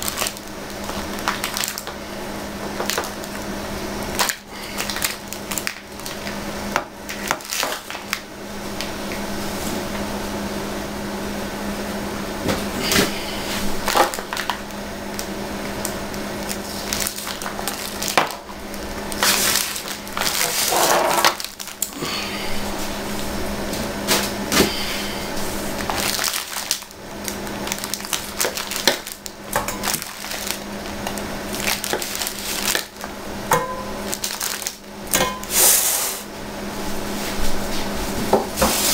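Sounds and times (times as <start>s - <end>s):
plastic wrap crinkling: 0.0s - 6.4s, 7.0s - 9.0s, 12.6s - 23.3s, 24.1s - 33.2s, 34.0s - 35.9s
steady low hum: 0.0s - 38.9s.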